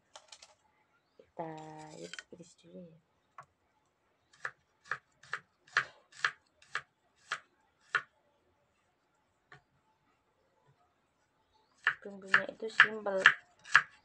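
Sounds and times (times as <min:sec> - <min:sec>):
knife chopping on wooden board: 0:11.8 - 0:14.0.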